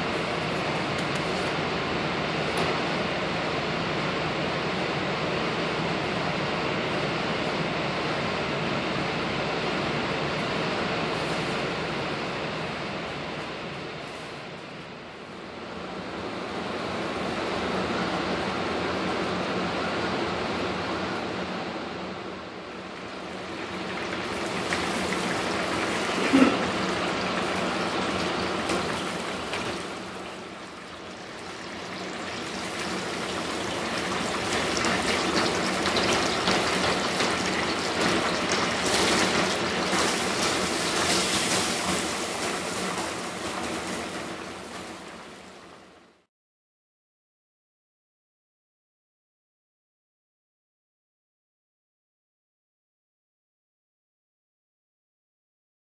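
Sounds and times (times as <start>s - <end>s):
oil sizzling and bubbling: 22.1s - 46.3s.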